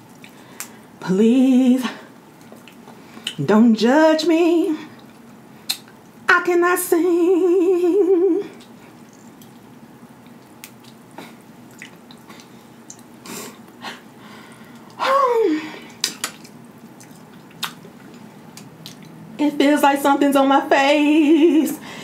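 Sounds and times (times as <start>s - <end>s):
wet chewing mouth sounds: 8.6s - 13.8s, 16.3s - 19.2s.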